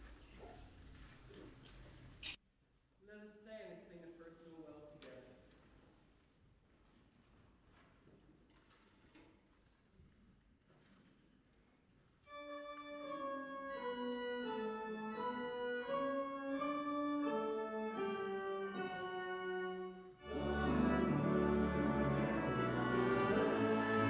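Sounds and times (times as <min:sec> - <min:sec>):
church organ playing: 0:12.3 - 0:24.0.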